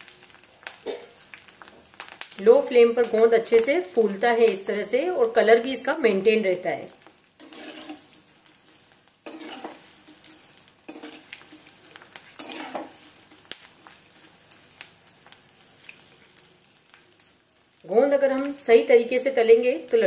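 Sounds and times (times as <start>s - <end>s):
crackling pops: 0.0s - 4.7s, 6.7s - 18.7s
gum deep-frying sizzle: 0.0s - 20.0s.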